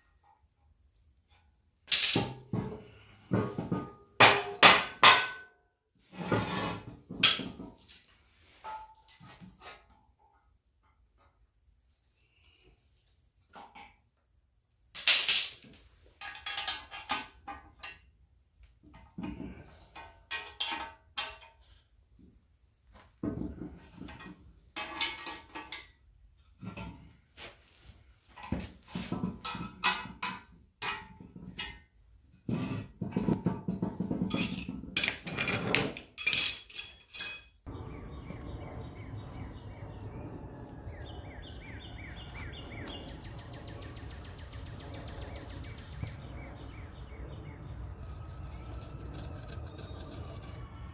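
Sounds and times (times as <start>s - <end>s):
outdoor background noise: 0.0s - 50.9s
steel parts clanking and ringing: 16.2s - 17.4s, 34.3s - 37.7s
bird calls: 37.7s - 50.4s.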